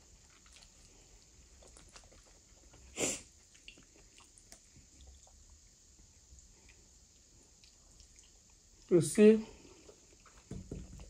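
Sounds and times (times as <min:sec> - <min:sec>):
person chewing: 0:00.0 - 0:08.9
sharp nose sniff: 0:02.9 - 0:03.3.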